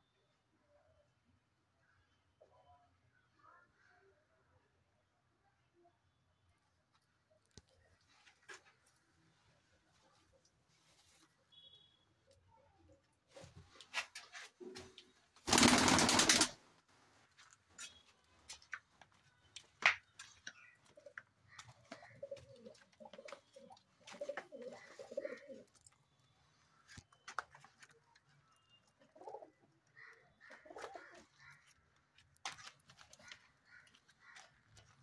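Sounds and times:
pigeons cooing: 21.6s - 25.8s, 29.2s - 29.7s, 30.5s - 31.3s.

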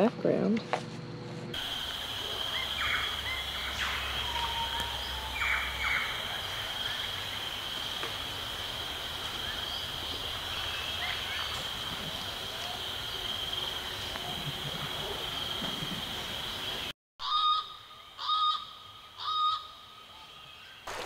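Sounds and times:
high-pitched insect drone: 1.6s - 16.8s.

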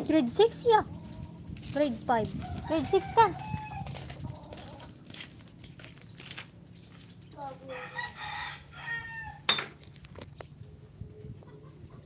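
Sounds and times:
rooster crowing: 2.4s - 4.1s, 7.7s - 9.5s.

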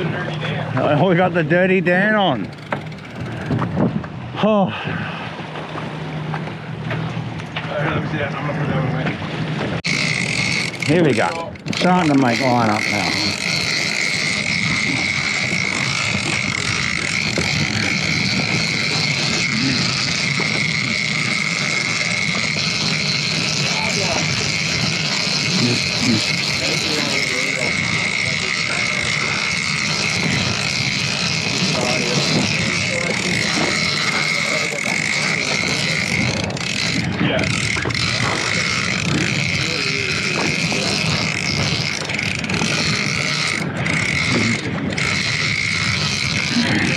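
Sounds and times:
fishing reel gears whirring: 0.0s - 7.6s, 9.6s - 46.9s
outboard motor running: 0.0s - 46.9s
water noise: 0.0s - 46.9s
wind noise: 3.2s - 6.0s.

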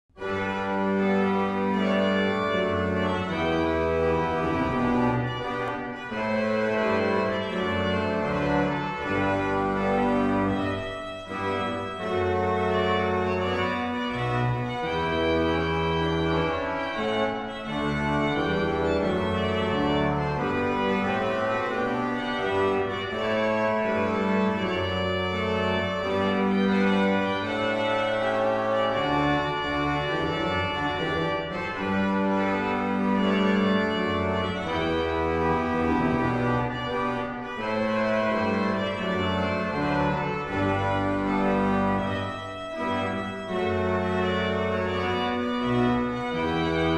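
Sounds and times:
pipe organ playing chords: 0.1s - 46.9s.

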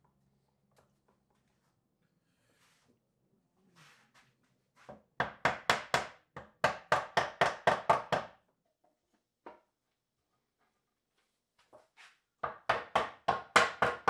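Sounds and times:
wooden mallet knocking on wood: 5.2s - 8.4s, 12.4s - 14.0s.

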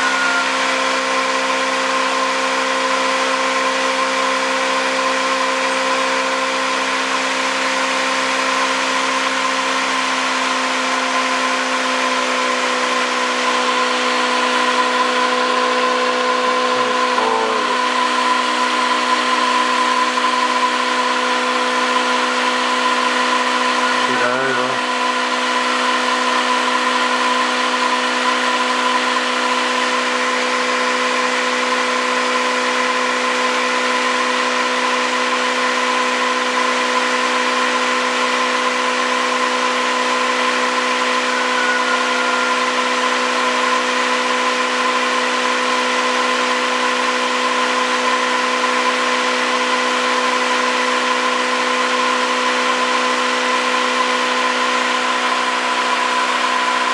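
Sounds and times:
short wavering chirp: 0.0s - 0.7s, 41.2s - 42.9s
pulse motor whining: 0.0s - 1.4s, 12.9s - 27.8s, 38.6s - 45.7s.

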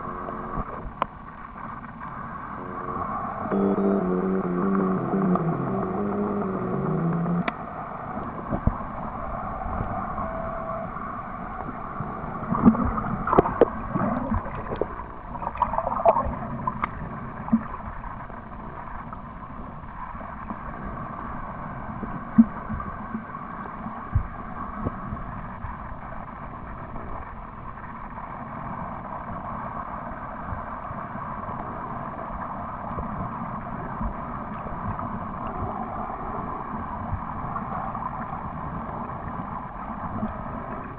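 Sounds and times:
underwater water wash: 0.0s - 40.9s
underwater clicks and knocks: 12.6s - 17.7s.

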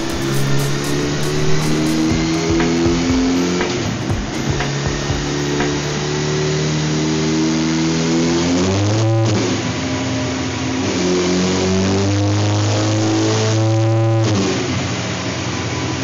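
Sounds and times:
motorcycle engine revving: 0.0s - 9.8s.

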